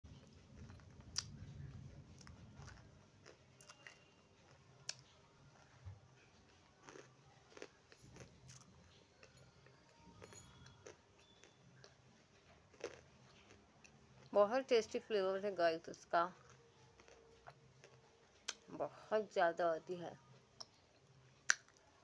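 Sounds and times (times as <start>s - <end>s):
clay being chewed with crisp crunches: 0.1s - 14.3s, 16.4s - 18.7s.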